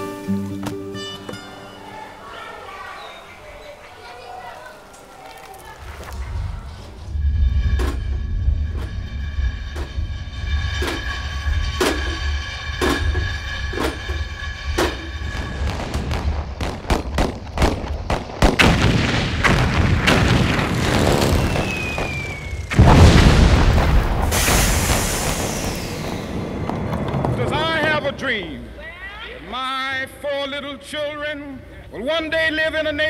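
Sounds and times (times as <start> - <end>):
loud explosion: 6.2 - 28.2
gunfire-like cracks: 15.9 - 27.1
falling whistle: 21.2 - 22.9.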